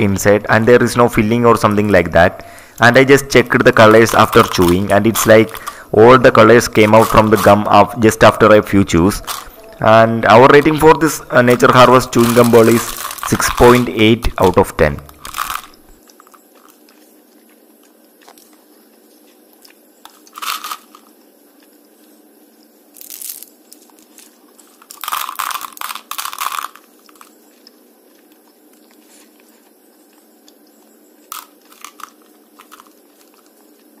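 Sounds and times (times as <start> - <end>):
chewing gum crunching: 15.2 - 20.4, 26.3 - 34.0.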